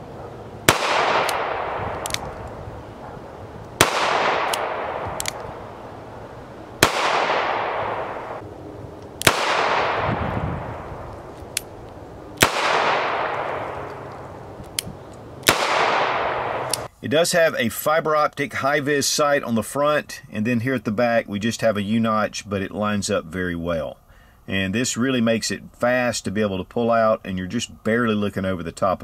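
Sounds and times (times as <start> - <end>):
revolver gunshots with echo: 0.6 - 2.3, 3.8 - 5.6, 6.8 - 8.4, 9.2 - 11.0, 12.4 - 14.1, 15.4 - 16.9
faint revolver clicks: 2.0 - 2.5, 4.4 - 5.5.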